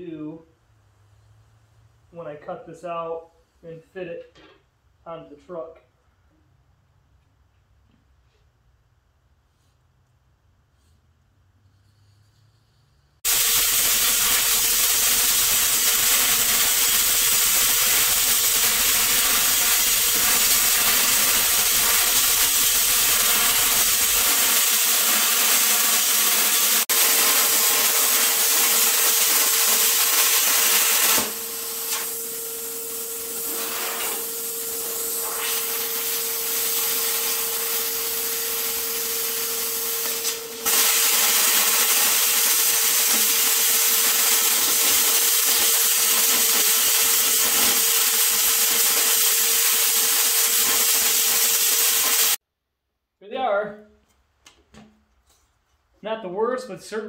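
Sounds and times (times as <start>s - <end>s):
plasma cutter hissing: 13.2s - 52.4s.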